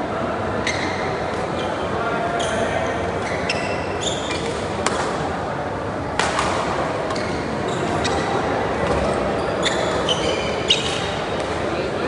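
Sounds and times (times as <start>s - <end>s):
murmur of sports hall: 0.0s - 12.0s
shoes squeaking on court: 0.6s - 5.2s, 7.0s - 11.4s
racket striking shuttlecock: 6.2s - 6.7s.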